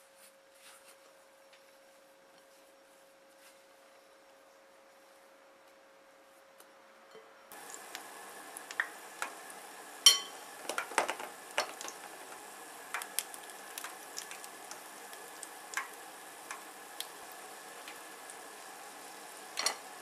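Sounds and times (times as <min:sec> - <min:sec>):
dough deep-frying in oil: 0:07.5 - 0:20.0.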